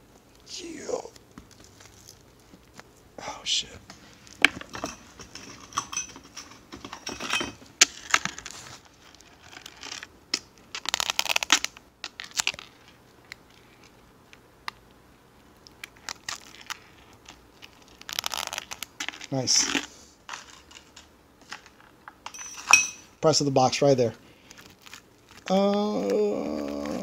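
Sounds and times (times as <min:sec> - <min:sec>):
plastic shrink-wrap crinkling: 0:01.1 - 0:03.0, 0:07.8 - 0:14.0, 0:15.4 - 0:22.0, 0:24.4 - 0:27.0.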